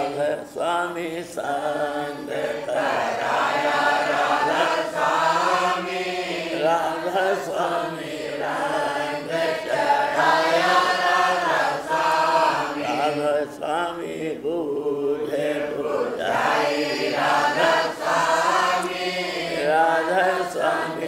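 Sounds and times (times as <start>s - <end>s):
voices chanting a hymn: 0.0s - 21.0s.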